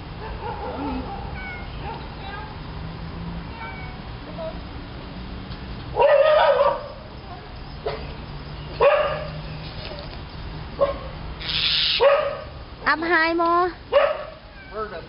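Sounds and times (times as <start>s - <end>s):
loud animal calls: 11.4s - 12.2s.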